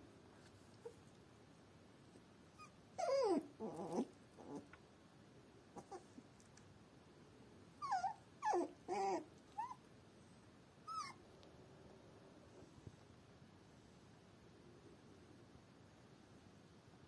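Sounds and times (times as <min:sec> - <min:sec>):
puppy whimpering: 0:02.6 - 0:04.7, 0:05.8 - 0:06.2, 0:07.8 - 0:09.9, 0:10.8 - 0:11.2.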